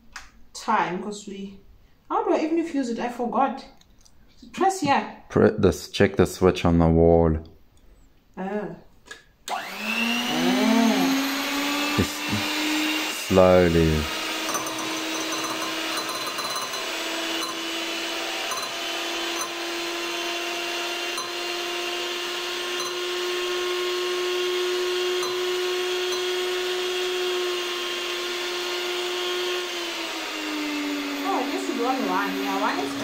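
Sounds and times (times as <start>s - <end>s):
electric hand mixer hum: 9.5s - 33.0s
beaters whisking in glass bowl: 13.2s - 28.4s.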